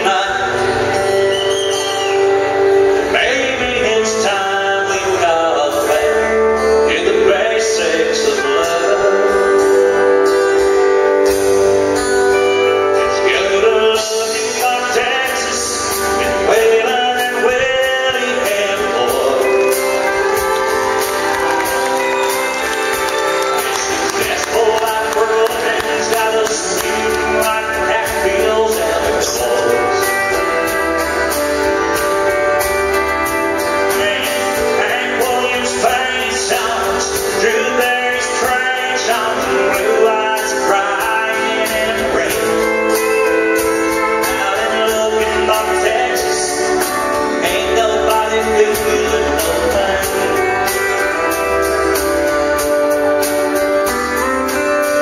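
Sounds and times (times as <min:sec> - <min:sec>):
man singing: 0:00.0 - 0:11.2, 0:12.2 - 0:21.8, 0:22.9 - 0:55.0
drums: 0:00.0 - 0:55.0
pedal steel guitar: 0:00.0 - 0:55.0.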